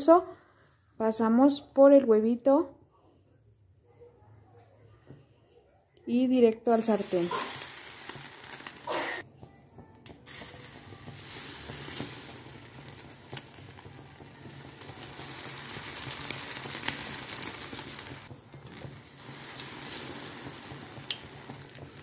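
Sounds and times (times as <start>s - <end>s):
food sizzling in hot oil: 6.7s - 9.2s, 10.2s - 22.0s
oil crackling spatters: 6.8s - 9.2s, 10.2s - 22.0s.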